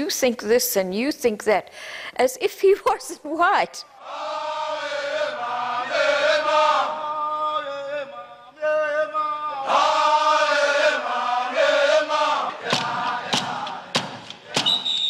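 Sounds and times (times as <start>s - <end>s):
men chanting in held notes: 4.0s - 14.8s.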